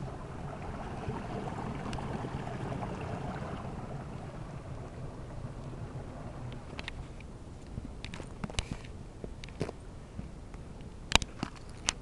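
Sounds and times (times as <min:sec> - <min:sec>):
water rushing under ice: 0:00.0 - 0:07.5.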